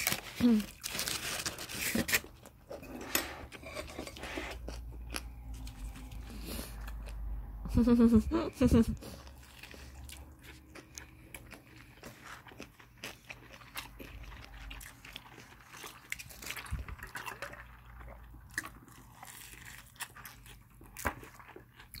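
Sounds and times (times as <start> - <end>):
crunchy bites and chewing: 9.3 - 22.0.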